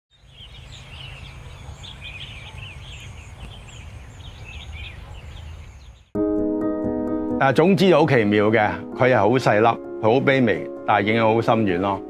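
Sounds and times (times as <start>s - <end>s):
small birds chirping: 0.1s - 6.2s.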